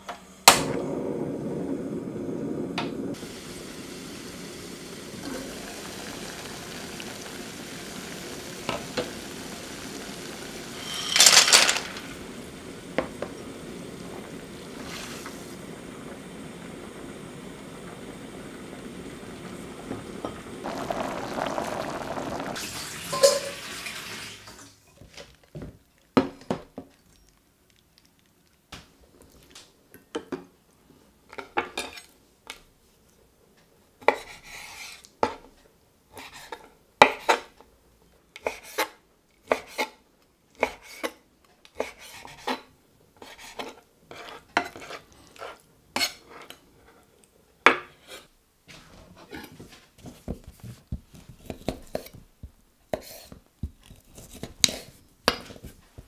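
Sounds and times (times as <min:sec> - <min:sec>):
water boiling in a pot: 0:00.4 - 0:27.8, 0:49.2 - 0:56.0.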